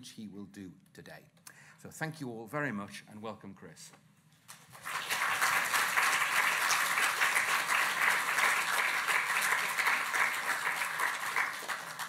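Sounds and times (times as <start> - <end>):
audience applauding: 4.6 - 12.0.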